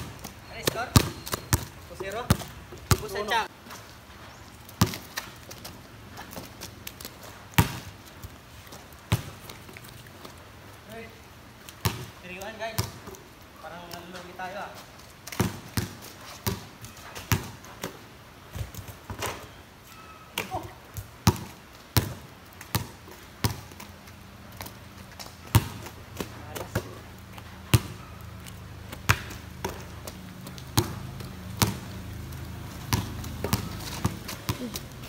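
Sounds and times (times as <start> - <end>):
basketball bouncing on concrete: 0.0 - 3.5, 4.8 - 5.2, 7.6 - 7.9, 9.1 - 9.4, 11.8 - 13.2, 15.3 - 19.3, 20.4 - 23.8, 24.6 - 35.0.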